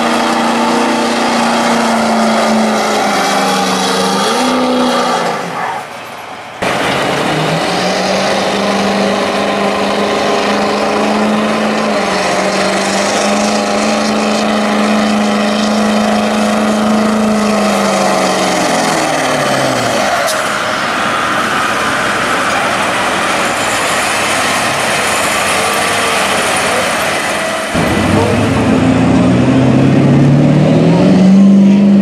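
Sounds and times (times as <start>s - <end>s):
diesel truck engine revving hard: 0.0s - 5.7s, 6.6s - 32.0s
high whine: 6.6s - 32.0s.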